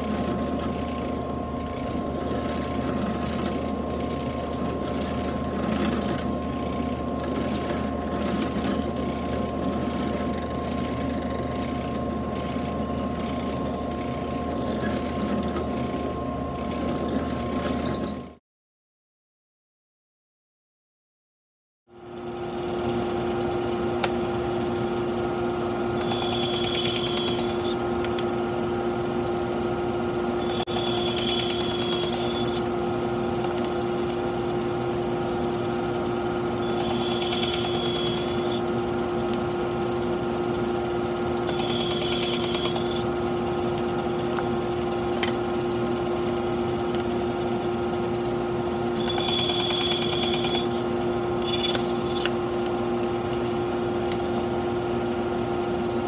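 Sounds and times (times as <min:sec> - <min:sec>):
bandsaw motor hum: 0:00.0 - 0:18.3, 0:22.1 - 0:56.0
high-pitched saw whine cutting wood: 0:03.9 - 0:05.2, 0:08.7 - 0:09.9, 0:24.5 - 0:28.2, 0:30.2 - 0:44.7, 0:46.2 - 0:55.0.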